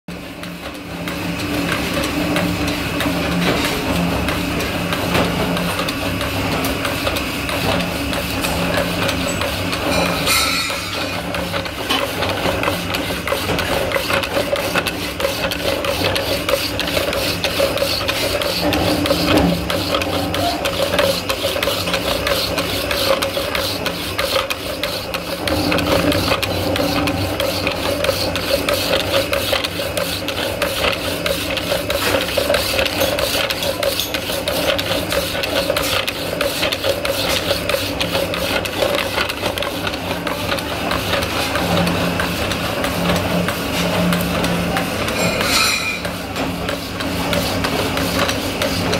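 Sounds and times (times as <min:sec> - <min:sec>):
machine running hum: 0:00.1 - 0:48.9
saw blade rasping through metal: 0:09.3 - 0:38.6, 0:45.1 - 0:46.2.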